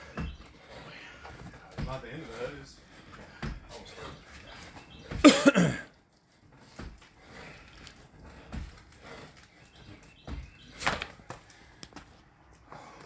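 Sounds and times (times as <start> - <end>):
man coughing hoarsely: 5.1 - 5.9.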